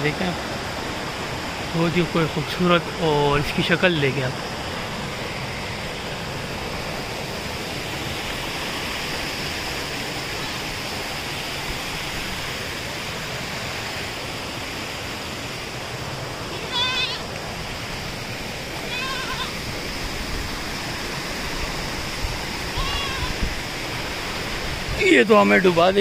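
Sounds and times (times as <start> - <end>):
stream water flowing: 0.0 - 26.0
goat bleating: 16.5 - 17.3, 18.9 - 19.6, 22.7 - 23.4.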